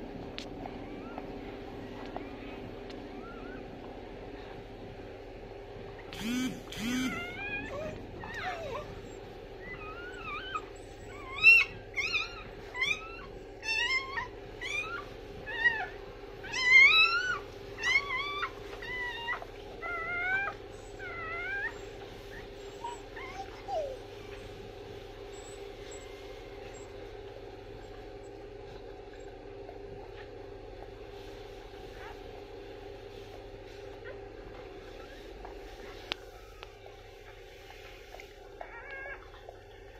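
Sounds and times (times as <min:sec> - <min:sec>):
puppies squeaking and whimpering: 0:00.7 - 0:03.7, 0:06.0 - 0:24.6, 0:25.2 - 0:27.0, 0:38.1 - 0:39.5.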